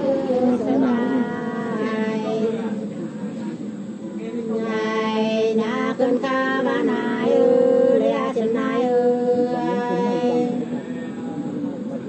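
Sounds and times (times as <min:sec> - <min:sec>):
women singing unaccompanied: 0:00.0 - 0:02.8, 0:04.5 - 0:10.8.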